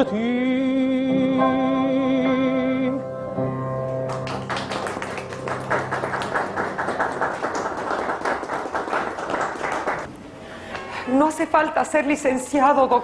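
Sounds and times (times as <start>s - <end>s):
audience applause: 4.0s - 10.1s.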